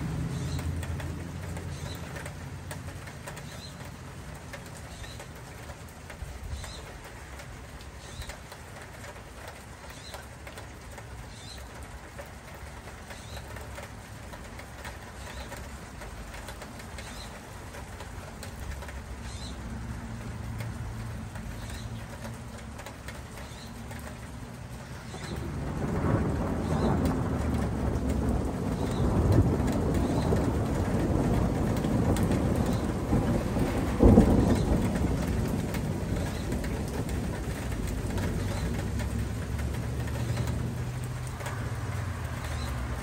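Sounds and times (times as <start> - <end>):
distant thunder rumbling: 23.2 - 43.0.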